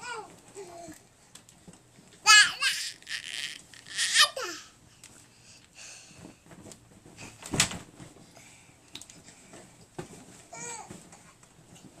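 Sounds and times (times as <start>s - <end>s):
toddler squealing and laughing: 2.3s - 4.6s
thump of jump in crib: 7.2s - 8.0s.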